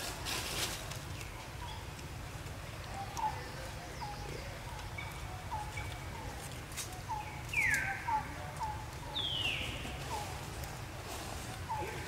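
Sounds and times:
birds chirping: 1.0s - 12.0s.

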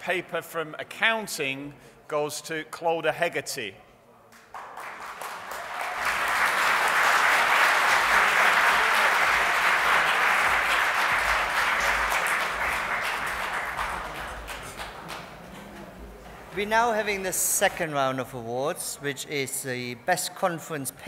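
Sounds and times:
audience applauding: 4.4s - 15.9s.

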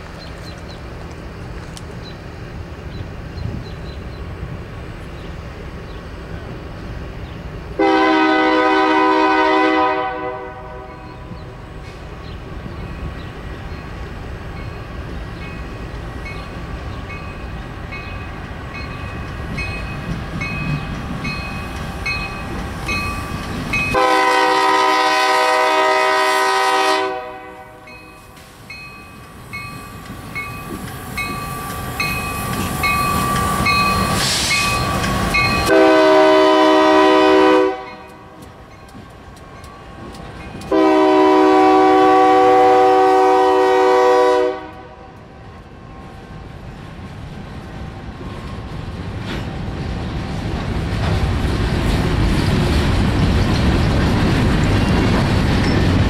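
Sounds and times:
locomotive engines rumbling: 0.0s - 56.0s
train wheels on rails: 0.0s - 56.0s
train horn blasts: 7.8s - 11.2s, 23.9s - 28.0s, 33.5s - 38.4s, 40.6s - 45.3s
bell ringing: 27.9s - 35.7s.

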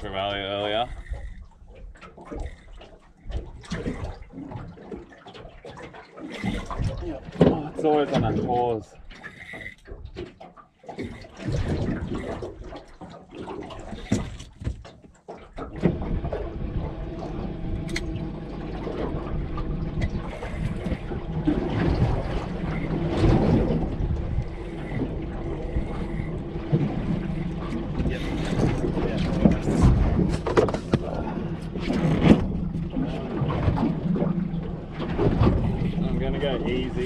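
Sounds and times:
water noise: 0.0s - 37.0s
wind noise: 19.1s - 37.0s.

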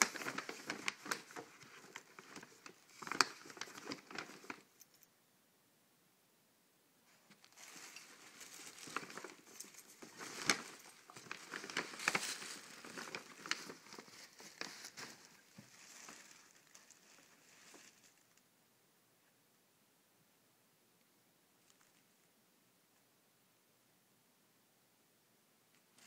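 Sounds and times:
paper bag crinkling and rustling: 0.0s - 4.8s, 7.2s - 18.4s.

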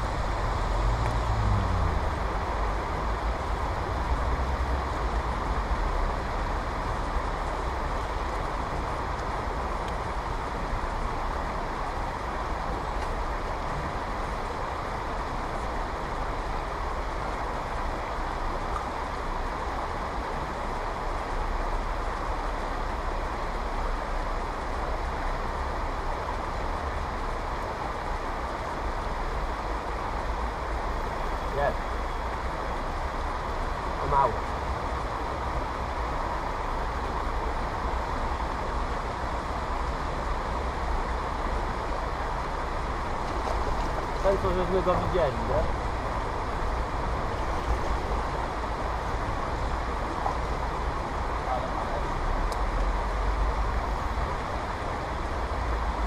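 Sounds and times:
river water rushing over stones: 0.0s - 56.0s.

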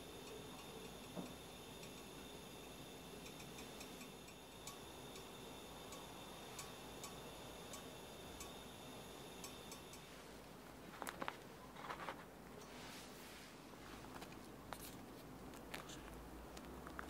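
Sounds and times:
faint irregular ticks: 0.0s - 10.1s
faint high hiss: 0.0s - 10.6s.

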